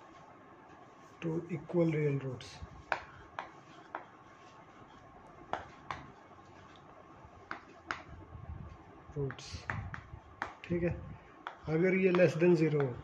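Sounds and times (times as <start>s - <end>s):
chalk tapping on chalkboard: 2.8s - 4.5s, 5.5s - 6.2s, 7.4s - 8.1s, 9.2s - 10.7s, 11.4s - 13.0s.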